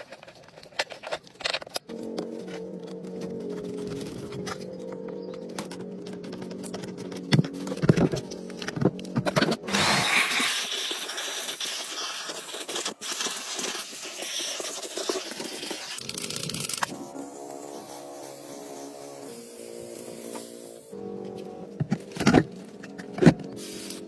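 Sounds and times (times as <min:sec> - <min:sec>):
aerosol can spraying: 0:09.7 - 0:20.9, 0:23.6 - 0:24.0.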